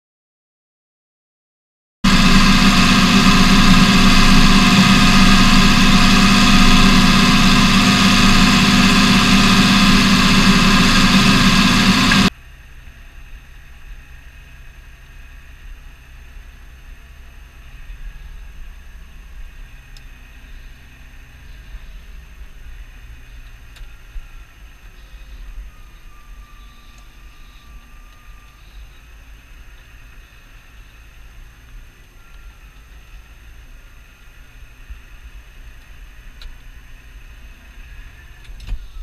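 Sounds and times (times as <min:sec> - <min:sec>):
tractor diesel engine running: 0:02.1 - 0:39.0.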